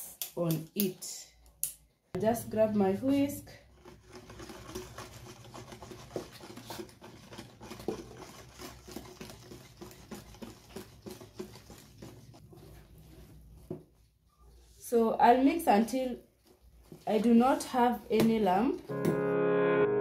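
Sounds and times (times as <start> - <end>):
whisk scraping and tapping bowl: 3.1 - 13.7.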